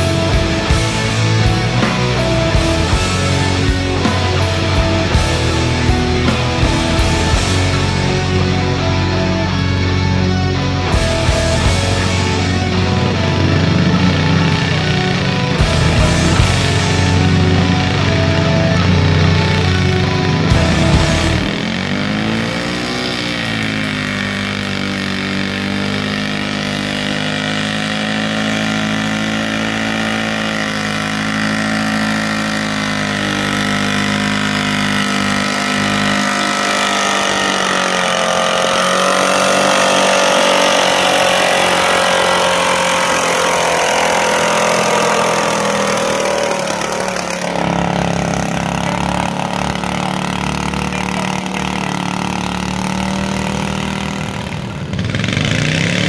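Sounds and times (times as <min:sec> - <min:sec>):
garden tractor engine labouring: 0:00.0 - 0:56.0.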